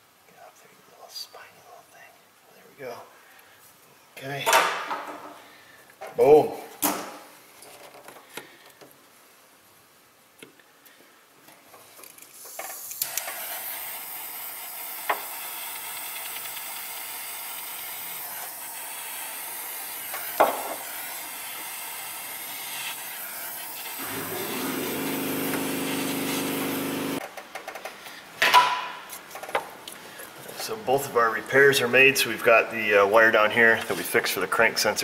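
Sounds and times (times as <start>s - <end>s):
heat tool hissing: 12.4s - 27.2s.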